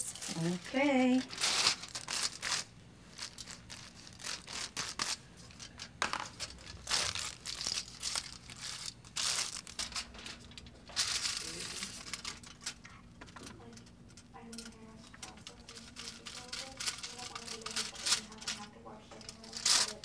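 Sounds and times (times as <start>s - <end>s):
aluminium foil crinkling: 0.0s - 20.0s.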